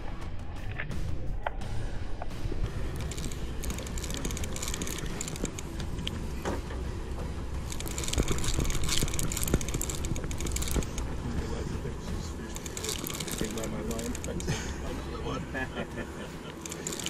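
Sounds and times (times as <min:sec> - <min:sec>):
fishing reel clicking: 0:02.9 - 0:06.2, 0:07.6 - 0:11.2, 0:12.5 - 0:14.6, 0:16.6 - 0:17.0.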